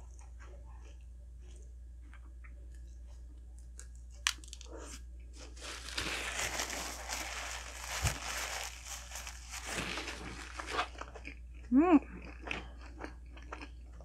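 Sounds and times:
paper packaging crinkling: 0:04.2 - 0:04.8, 0:05.4 - 0:11.1.

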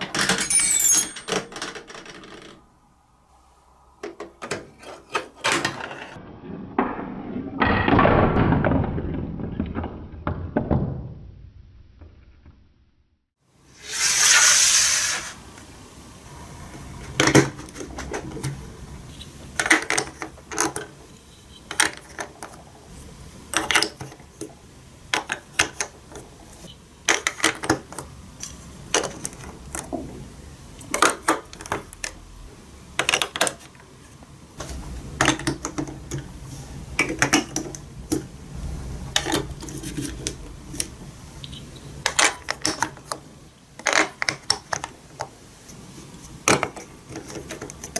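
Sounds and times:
plastic blocks clicking together: 0:19.6 - 0:21.0, 0:21.7 - 0:22.6, 0:23.5 - 0:24.5, 0:27.1 - 0:29.9, 0:33.0 - 0:33.8, 0:42.0 - 0:45.3
loud rushing noise: 0:38.3 - 0:39.6.

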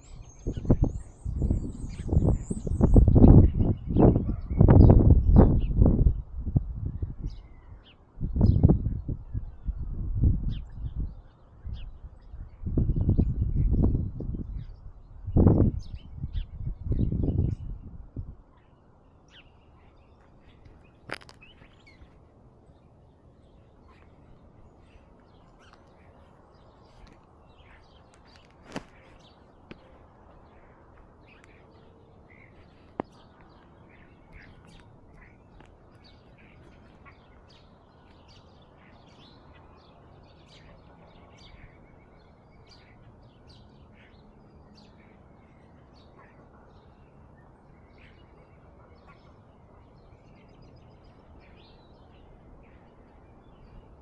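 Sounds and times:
small birds chirping: 0:00.0 - 0:54.0
low background noise: 0:13.6 - 0:54.0.

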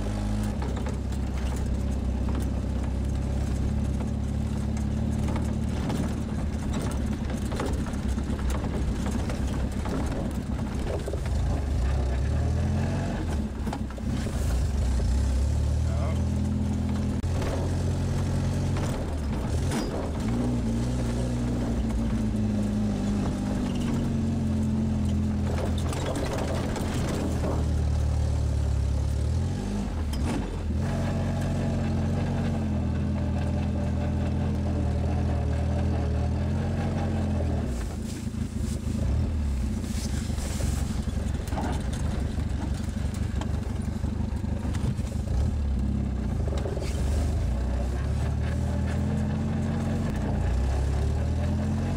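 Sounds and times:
car engine running: 0:00.0 - 0:51.9
knocks and rattles: 0:00.3 - 0:15.0, 0:16.2 - 0:30.8, 0:40.0 - 0:51.8.

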